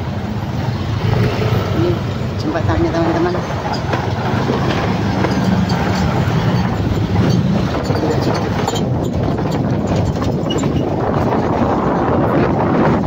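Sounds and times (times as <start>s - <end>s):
vehicle engine and road noise: 0.0s - 13.0s
rattling clicks: 3.3s - 10.9s.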